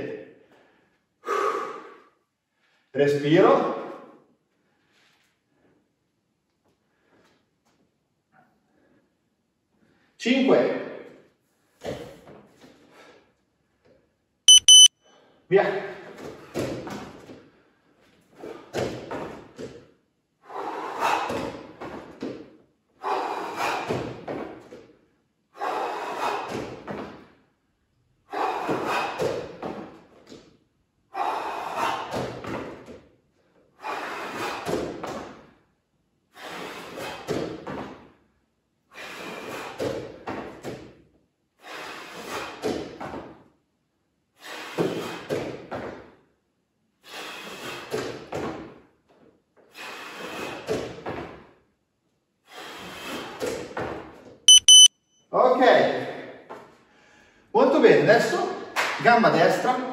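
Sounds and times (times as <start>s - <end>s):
person breathing hard: 0.4s - 2.9s.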